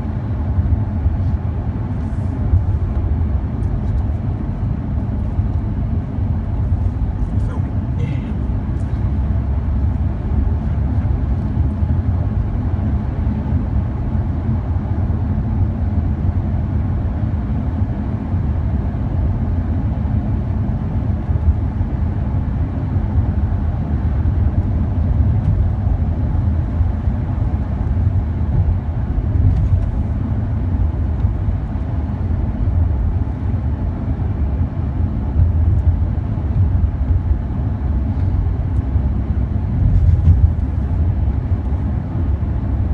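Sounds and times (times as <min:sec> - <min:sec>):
car engine and tyre noise: 0:00.0 - 0:42.9.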